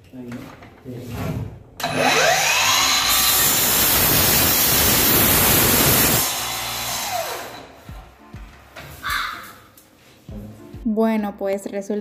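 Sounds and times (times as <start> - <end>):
miter saw cutting a board: 1.8 - 7.8.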